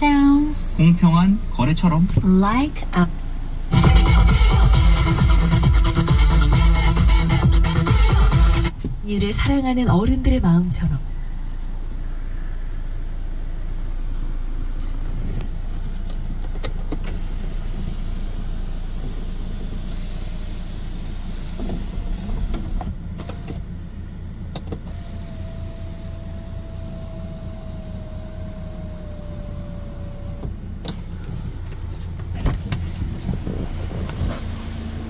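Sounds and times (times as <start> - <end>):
car engine rumbling: 0.0 - 35.0
power window motor whine: 14.7 - 23.8, 24.4 - 31.4.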